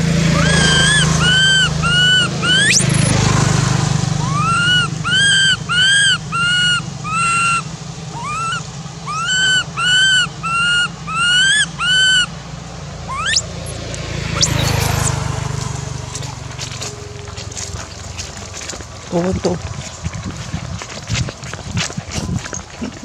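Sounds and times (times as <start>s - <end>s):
infant monkey crying: 0.0s - 12.4s, 13.0s - 15.3s
low hum: 0.0s - 23.0s.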